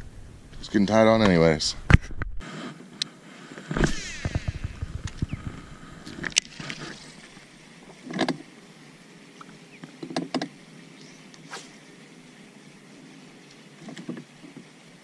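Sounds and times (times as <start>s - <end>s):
fishing reel whirring: 3.8s - 5.7s
fishing rod swish: 11.5s - 11.8s.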